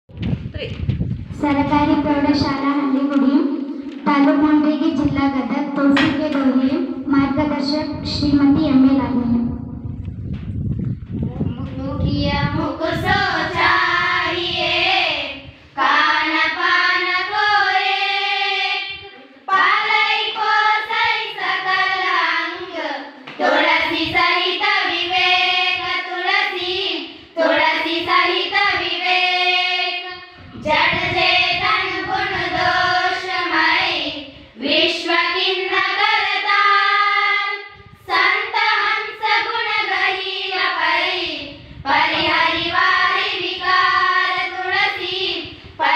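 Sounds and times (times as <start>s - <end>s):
girls singing in unison: 12.0s - 45.9s.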